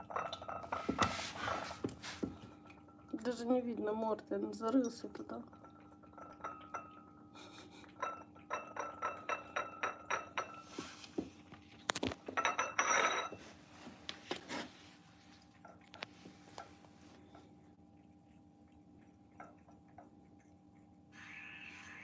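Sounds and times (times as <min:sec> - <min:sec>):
cat lapping: 0:04.9 - 0:11.9, 0:14.7 - 0:22.0
porcelain saucer clinking: 0:08.0 - 0:10.7, 0:12.3 - 0:13.4.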